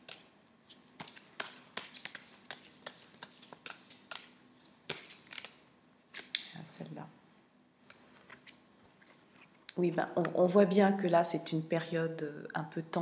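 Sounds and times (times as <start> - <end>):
cards being shuffled: 0.0 - 6.3.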